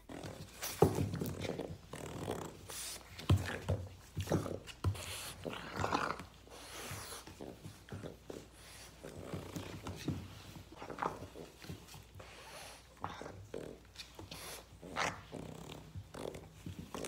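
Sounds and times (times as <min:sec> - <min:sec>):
dog growling: 0:05.4 - 0:06.7, 0:14.8 - 0:17.0.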